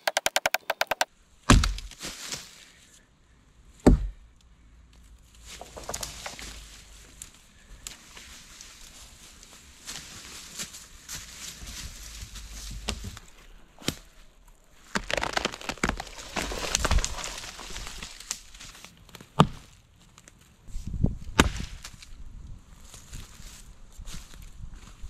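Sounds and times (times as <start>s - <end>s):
axe striking wood: 0.0s - 2.0s, 3.8s - 4.2s
branch dragging through leaves: 5.4s - 7.3s, 14.9s - 18.8s
footsteps crunching through dry leaves: 8.0s - 13.3s, 14.8s - 18.9s.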